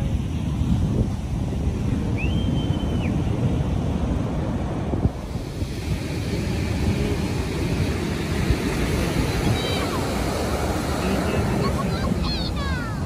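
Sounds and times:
foaming surf hiss: 0.0s - 13.0s
heavy surf breaking: 0.0s - 13.0s
wind buffeting microphone: 0.0s - 13.0s
high whistle: 2.2s - 3.3s.

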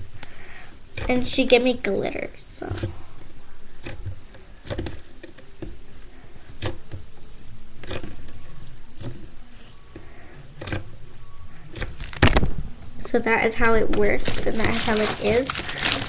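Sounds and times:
slime popping and squishing: 13.9s - 16.0s.

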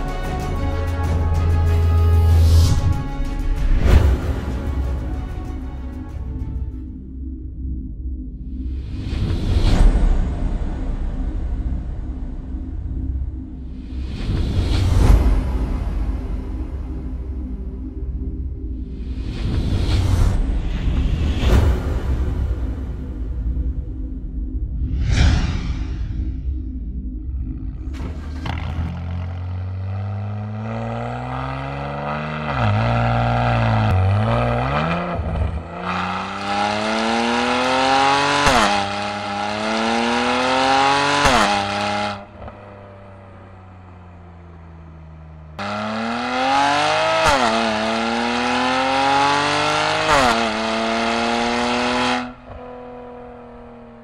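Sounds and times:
car engine revving: 27.0s - 54.0s.

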